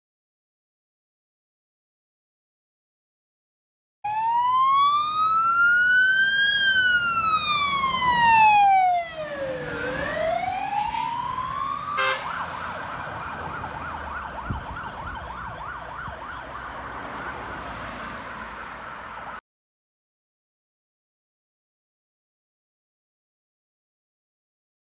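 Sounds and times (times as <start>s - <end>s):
fire truck siren wail and yelp: 4.0s - 19.4s
engine and road noise: 4.1s - 19.4s.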